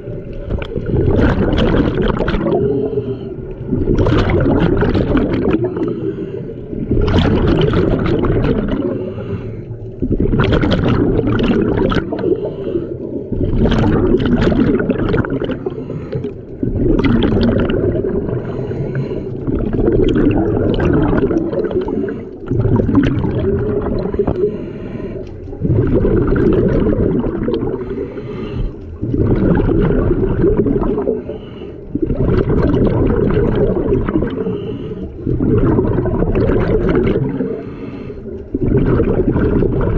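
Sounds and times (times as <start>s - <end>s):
exhaust bubbles gurgling: 0.0s - 39.9s
diver inhaling through regulator: 2.4s - 3.9s, 5.4s - 7.2s, 8.7s - 10.3s, 12.0s - 13.4s, 15.4s - 16.7s, 17.9s - 22.7s, 23.8s - 26.0s, 26.9s - 29.2s, 30.8s - 32.2s, 33.6s - 35.7s, 37.2s - 38.5s.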